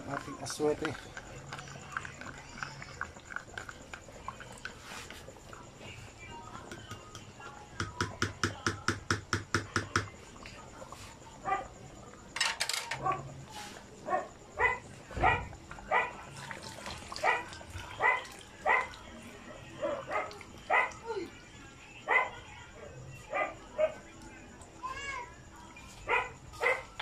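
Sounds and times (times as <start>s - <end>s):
dog barking: 11.4s - 11.7s, 13.0s - 13.3s, 14.0s - 16.2s, 17.2s - 19.0s, 19.8s - 21.0s, 22.1s - 22.4s, 23.3s - 24.0s, 26.1s - 27.0s.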